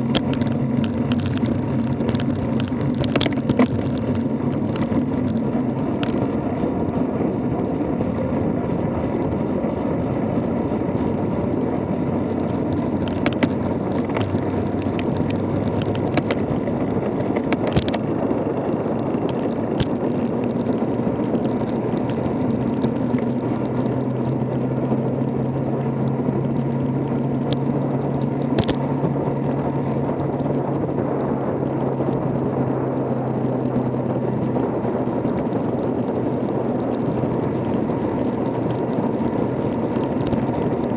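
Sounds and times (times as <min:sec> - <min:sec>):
tyres rumbling on asphalt: 0:00.0 - 0:40.9
sharp clicks: 0:28.6 - 0:28.8.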